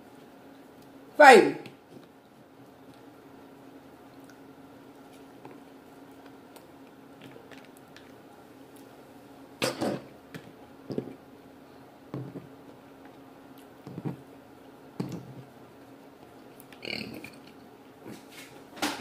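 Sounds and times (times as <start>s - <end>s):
person chewing: 2.0s - 9.0s, 12.9s - 18.3s.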